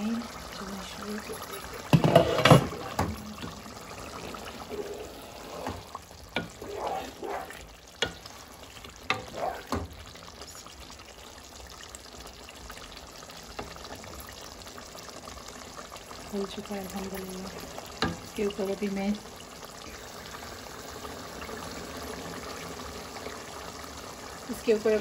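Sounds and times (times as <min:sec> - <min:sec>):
curry simmering hiss: 0:00.0 - 0:25.0
wooden spoon scraping pot: 0:01.4 - 0:09.9.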